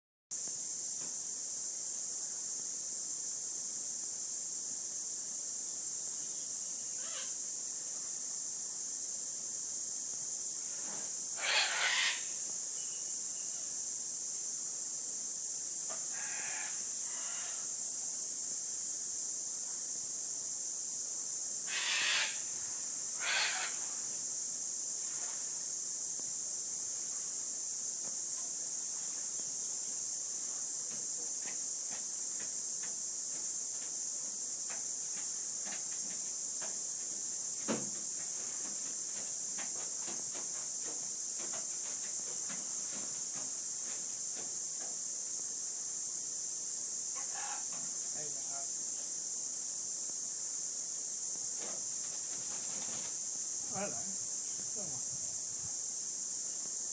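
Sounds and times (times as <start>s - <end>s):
high-pitched hiss: 0.3s - 56.9s
soft rustling: 51.6s - 53.3s.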